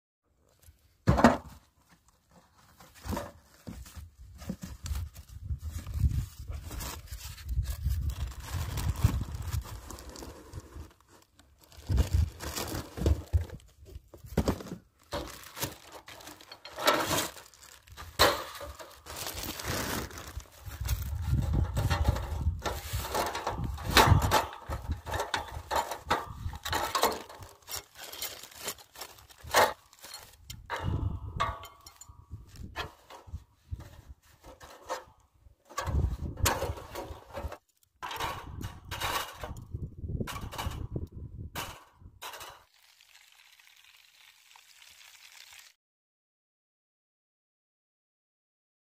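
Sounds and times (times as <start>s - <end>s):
wind rumble on microphone: 4.8s - 10.8s, 20.5s - 26.8s, 30.5s - 34.2s, 35.8s - 37.5s, 38.2s - 42.2s
plastic wrapping crinkling: 6.0s - 13.6s, 15.0s - 21.5s, 26.6s - 30.5s.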